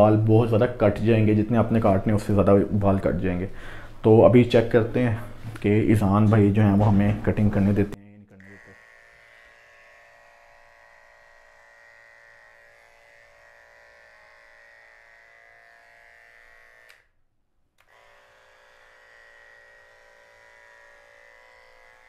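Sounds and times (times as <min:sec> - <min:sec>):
electric clipper buzzing: 0:08.4 - 0:17.2, 0:17.8 - 0:22.0.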